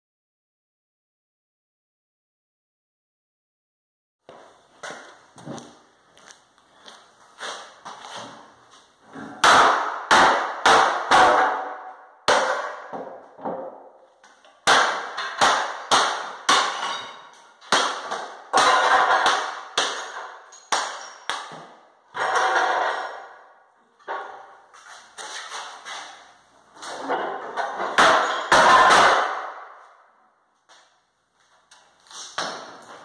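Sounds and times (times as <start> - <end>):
hammer blows cracking stone slab: 9.3 - 13.8, 14.6 - 23.4, 27.6 - 29.8.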